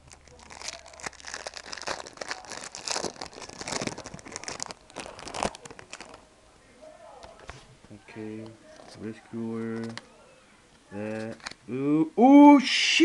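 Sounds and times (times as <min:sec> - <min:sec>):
foil wrapper crinkling and tearing: 0:00.0 - 0:06.2.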